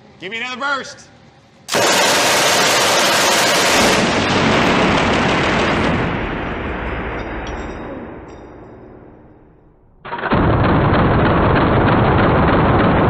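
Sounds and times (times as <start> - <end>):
machine gun firing: 1.7 - 7.2, 10.0 - 13.0.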